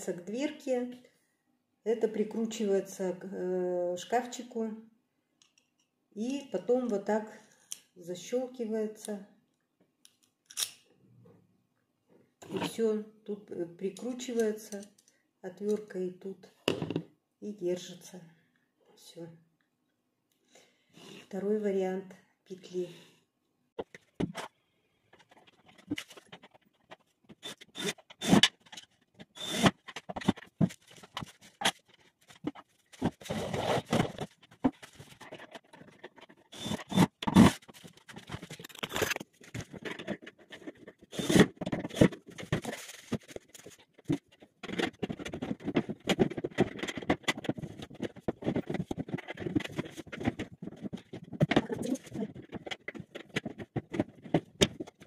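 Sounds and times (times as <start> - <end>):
wooden panels knocking and scraping: 25.1 - 55.0.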